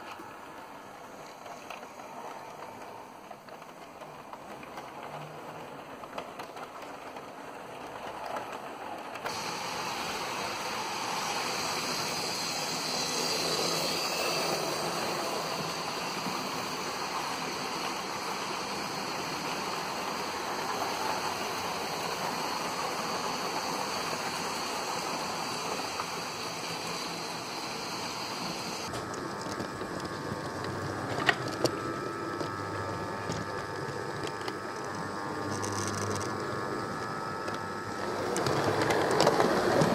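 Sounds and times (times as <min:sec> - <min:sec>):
model train rolling on track: 0:00.0 - 0:39.9
electric motor hum: 0:09.3 - 0:39.9.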